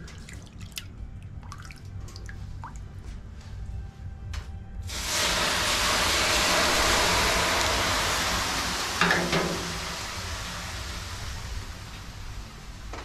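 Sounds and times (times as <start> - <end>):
loud rushing hiss: 4.9 - 12.9.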